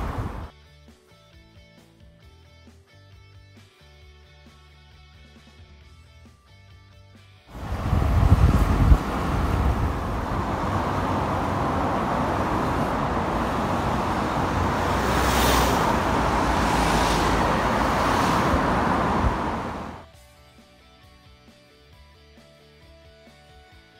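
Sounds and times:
highway traffic rushing past: 0.0 - 0.5, 7.5 - 20.0
heavy low rumble: 7.6 - 15.2.

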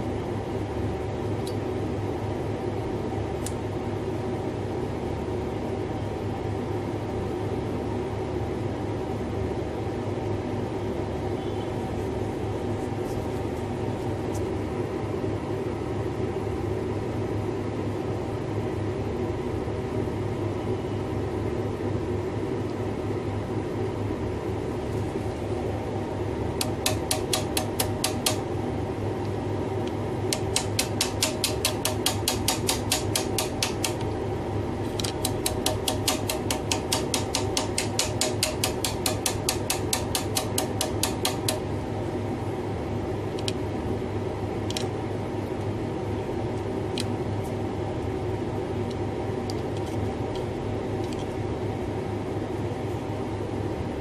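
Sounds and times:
steady mechanical hum: 0.0 - 54.0
hard disk actuator arm clicking: 26.6 - 28.4, 30.3 - 34.1, 35.0 - 41.6.

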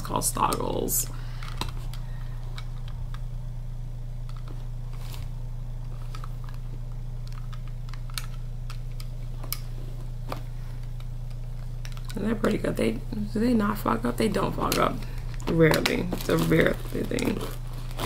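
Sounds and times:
steady low hum: 0.0 - 18.0
plastic glasses clicking: 7.2 - 9.7.

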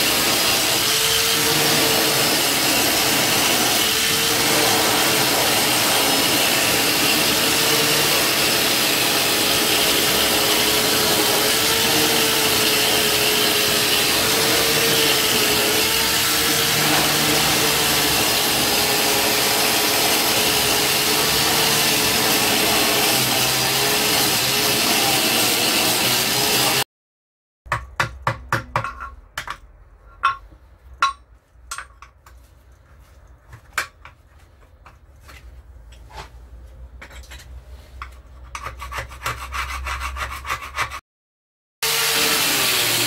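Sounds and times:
wire brush scrubbing metal: 0.0 - 23.2
scrapes and knocks: 28.6 - 41.0.

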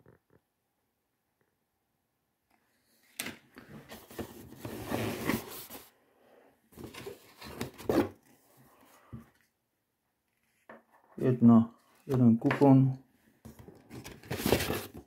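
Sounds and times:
paper and cardboard rustling: 3.6 - 5.9, 6.8 - 8.4, 13.4 - 15.0.

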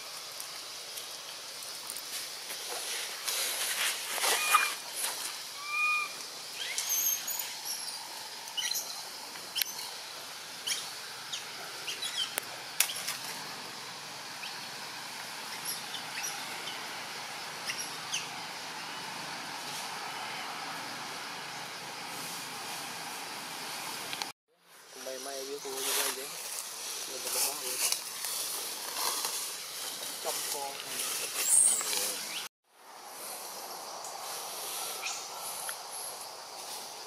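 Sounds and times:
steady outdoor hiss: 0.0 - 37.0
animals chirping and squeaking: 4.2 - 4.8, 5.6 - 9.9, 17.6 - 18.3.

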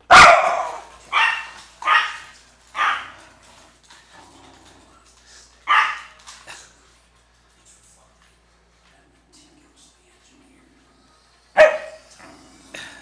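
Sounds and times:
dog barking: 0.0 - 3.1, 5.7 - 6.1, 11.6 - 12.0.

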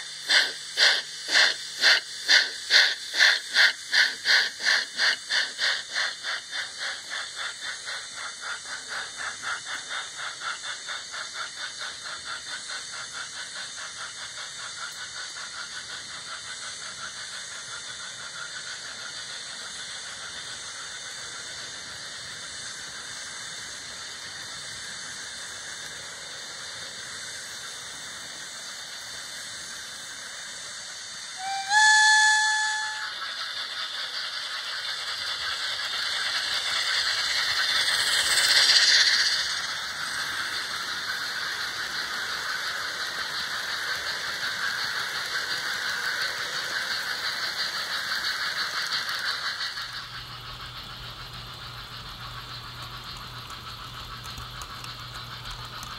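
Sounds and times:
model steam locomotive chuffing: 0.0 - 55.9
train whistle blast: 31.4 - 33.4.

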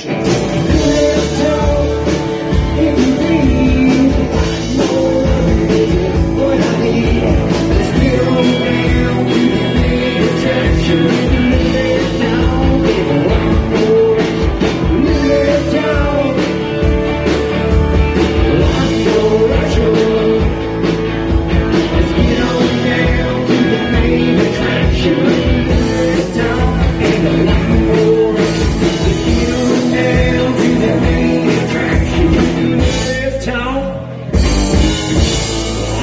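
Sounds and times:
electric guitar: 0.0 - 36.0
live rock and roll band: 0.0 - 36.0
drum beat: 0.3 - 33.0.

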